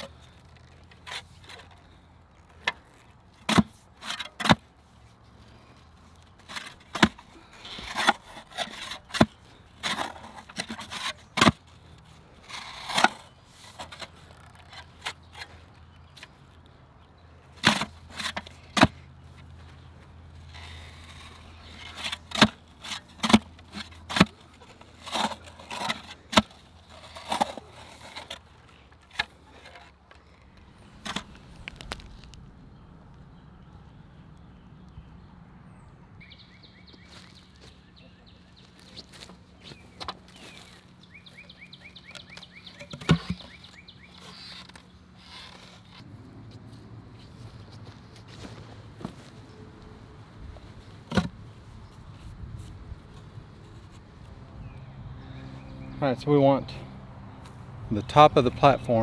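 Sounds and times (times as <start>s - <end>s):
dirt scraping: 0.0s - 33.3s, 36.2s - 59.0s
digger blades striking ground: 3.4s - 4.7s, 6.4s - 11.8s, 17.6s - 19.0s, 20.5s - 28.5s, 39.0s - 46.1s.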